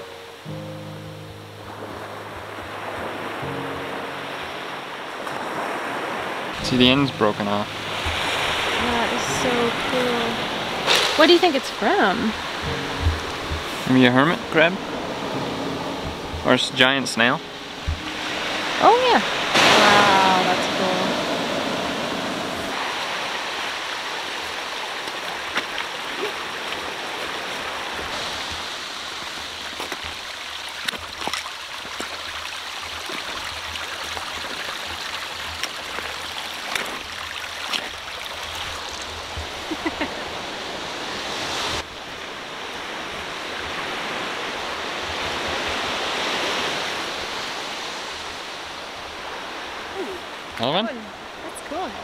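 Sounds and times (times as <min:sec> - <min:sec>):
small waves on pebble beach: 0:01.8 - 0:52.0
footsteps on stones: 0:29.2 - 0:32.2, 0:35.4 - 0:38.0.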